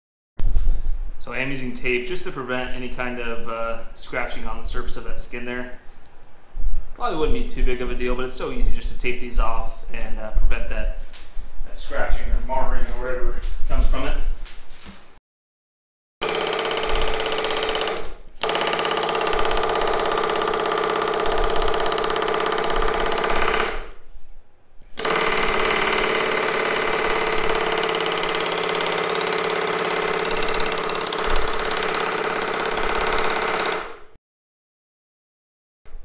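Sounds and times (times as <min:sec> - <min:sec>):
pneumatic rivet gun hammering: 0:16.2 - 0:24.0, 0:24.9 - 0:34.1.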